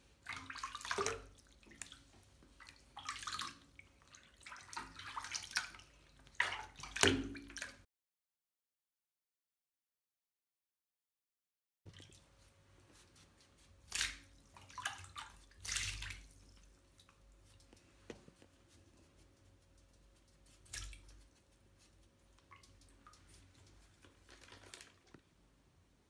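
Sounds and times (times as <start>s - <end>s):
water splashing and dripping: 0.2s - 7.8s, 13.9s - 17.8s, 20.3s - 21.3s, 22.3s - 25.2s.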